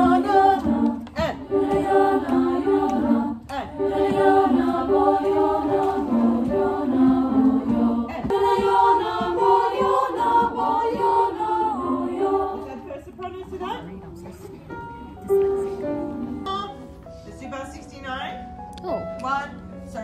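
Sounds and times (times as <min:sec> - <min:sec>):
group singing a cappella: 0:00.0 - 0:12.9.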